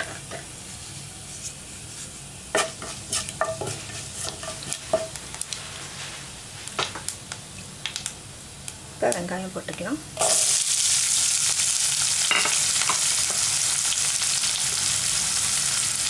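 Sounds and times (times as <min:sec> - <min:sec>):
wooden spatula scraping a pan: 0:00.0 - 0:06.2
seeds sizzling in hot oil: 0:00.0 - 0:16.0.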